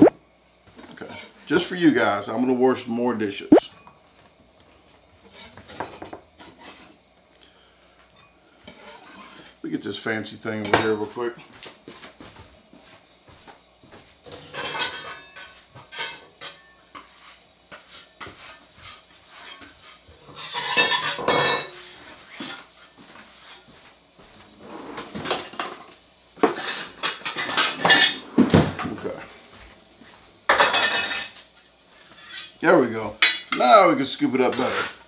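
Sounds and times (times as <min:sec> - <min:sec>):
dishes and metal utensils clattering: 0:14.2 - 0:17.2, 0:19.3 - 0:22.7, 0:25.0 - 0:29.1, 0:30.5 - 0:32.6.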